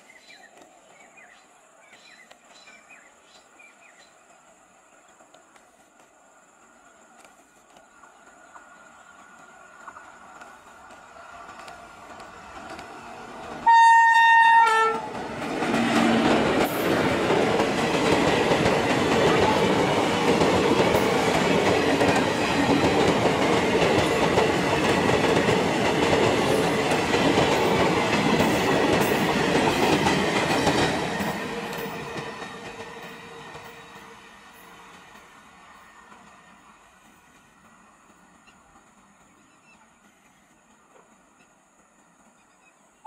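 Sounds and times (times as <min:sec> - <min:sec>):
train passing rumble: 0:00.0 - 0:43.0
wheels clicking over rail joints: 0:00.2 - 0:13.7
train horn blast: 0:13.6 - 0:15.1.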